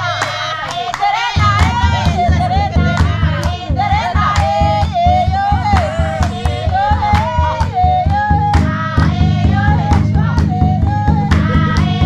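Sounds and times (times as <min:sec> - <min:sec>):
women singing folk song: 0:00.0 - 0:12.0
fast drum beat: 0:01.3 - 0:10.2.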